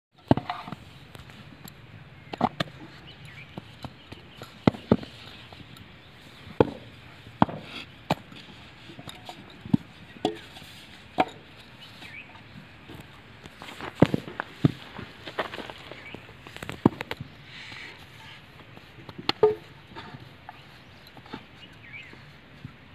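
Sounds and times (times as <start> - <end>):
moulds knocking on hard ground: 3.5 - 5.6, 6.5 - 10.6, 11.2 - 11.6, 12.4 - 17.2, 18.6 - 20.6.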